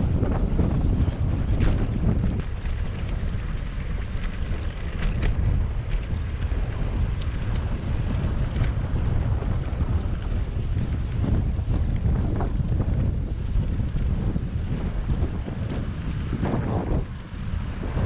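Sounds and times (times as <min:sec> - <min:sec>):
wind buffeting microphone: 0:00.0 - 0:18.0
faint ticks: 0:01.6 - 0:07.8, 0:08.4 - 0:08.9.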